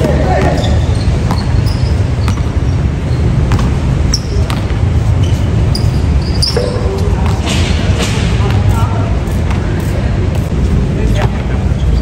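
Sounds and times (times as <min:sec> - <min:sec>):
basketball bouncing on court: 0:00.0 - 0:02.7, 0:03.4 - 0:06.0, 0:06.6 - 0:09.8
low rumble of hall noise: 0:00.0 - 0:12.0
shoe squeaks: 0:00.2 - 0:07.6, 0:11.8 - 0:12.0.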